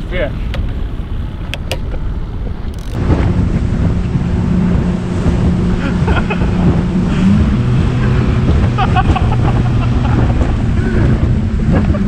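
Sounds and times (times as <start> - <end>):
wind buffeting microphone: 0.0 - 12.0
outboard motor boat running: 0.1 - 12.0
sharp clicks: 2.7 - 3.0.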